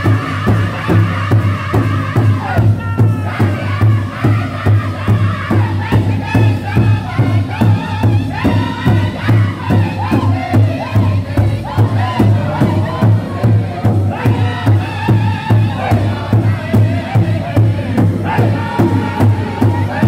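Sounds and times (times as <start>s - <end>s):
large drum steady beat: 0.0s - 20.0s
men singing in high voices: 0.0s - 20.0s.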